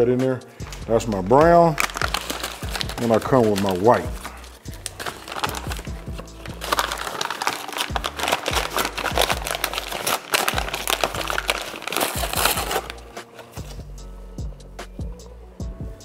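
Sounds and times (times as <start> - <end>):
background music with bass: 0.0 - 7.2, 7.8 - 16.0
paper bag crinkling: 1.1 - 13.8.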